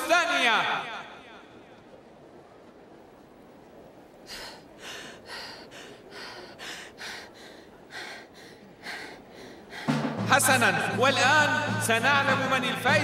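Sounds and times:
boy panting: 4.3s - 10.0s.

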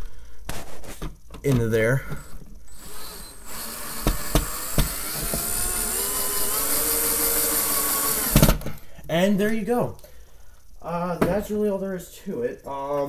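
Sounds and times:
drill clicks: 1.5s - 8.7s
drill motor whining: 2.0s - 8.6s.

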